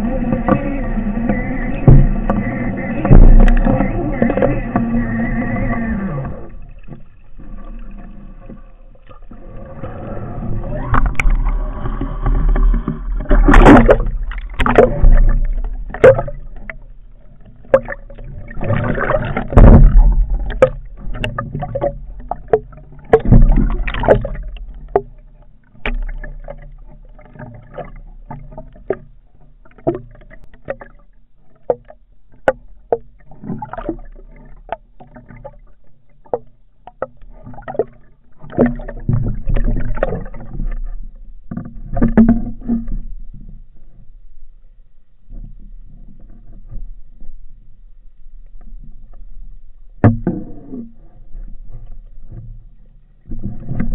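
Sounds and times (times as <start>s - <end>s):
water rushing underwater: 0.0s - 43.0s.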